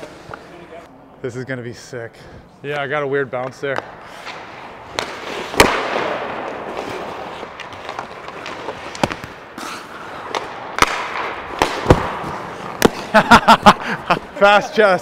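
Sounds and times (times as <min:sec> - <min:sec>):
hockey stick and puck cracks: 0:03.4 - 0:13.2
skate blades scraping ice: 0:03.7 - 0:14.4.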